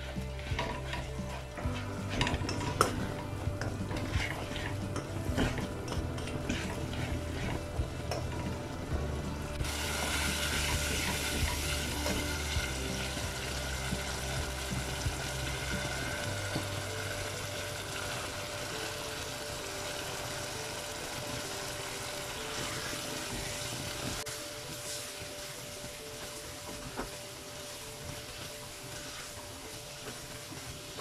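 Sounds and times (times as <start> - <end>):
spatula stirring and scraping: 0.0 - 17.8
masala sizzling in a pan: 0.0 - 31.0.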